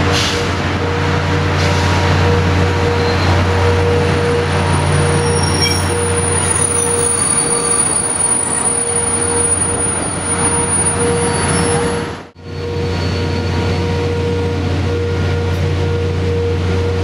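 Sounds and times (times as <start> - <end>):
train rumbling: 0.0 - 17.0
high-pitched squeal: 2.7 - 14.2.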